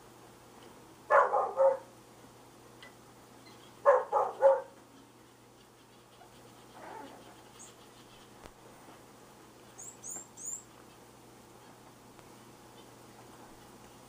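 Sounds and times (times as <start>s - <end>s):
puppy giving high barks: 1.1s - 1.9s, 3.8s - 4.8s.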